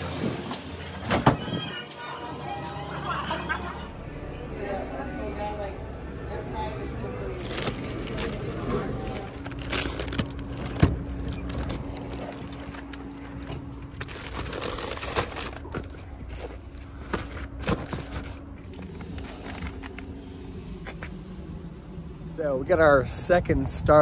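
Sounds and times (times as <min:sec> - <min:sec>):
steady low hum: 0:02.0 - 0:24.0
paper bag rustling: 0:07.3 - 0:20.1.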